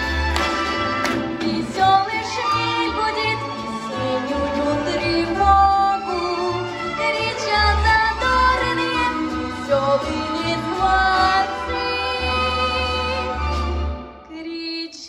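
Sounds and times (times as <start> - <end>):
military brass band: 0.0 - 1.4
woman singing: 1.3 - 13.4, 14.2 - 15.0.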